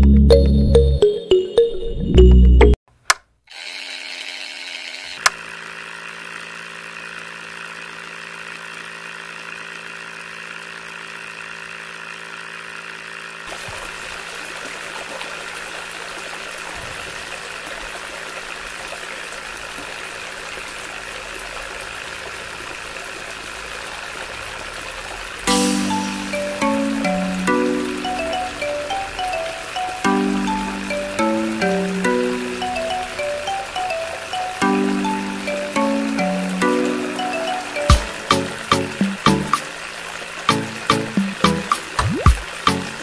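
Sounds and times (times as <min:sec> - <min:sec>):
small pump motor humming: 0:03.5 - 0:43.0
motor switching on click: 0:05.0 - 0:05.5
water pouring into wet soil: 0:13.4 - 0:25.5.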